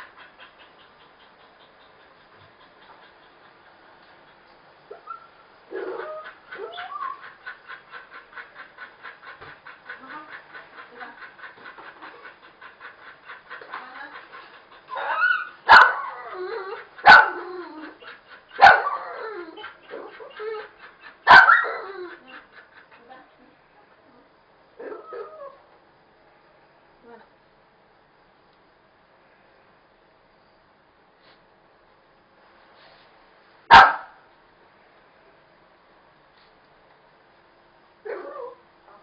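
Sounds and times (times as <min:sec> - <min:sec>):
dog whining: 0:04.9 - 0:07.5, 0:14.9 - 0:22.4
dog barking sharply: 0:15.7 - 0:16.1, 0:33.7 - 0:34.2.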